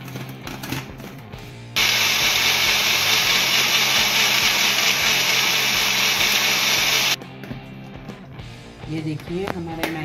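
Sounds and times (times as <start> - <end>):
blender motor whirring: 1.8 - 7.2.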